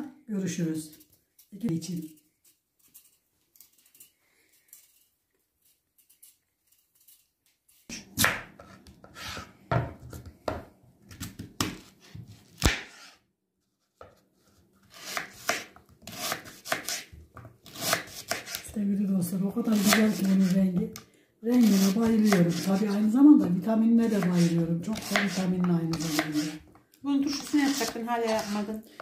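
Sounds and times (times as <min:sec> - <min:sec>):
knife cutting beetroot on board: 0:14.8 - 0:18.8, 0:19.7 - 0:20.8, 0:21.6 - 0:23.0, 0:24.0 - 0:26.7, 0:27.3 - 0:29.0.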